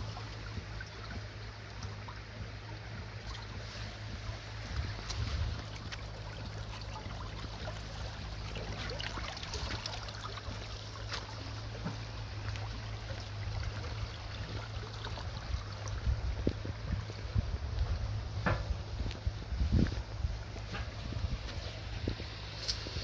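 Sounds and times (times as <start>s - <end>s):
low rumble: 0.0s - 23.0s
stream trickling over pebbles: 0.0s - 23.0s
small splashes and clicks: 3.2s - 3.9s, 4.5s - 17.2s.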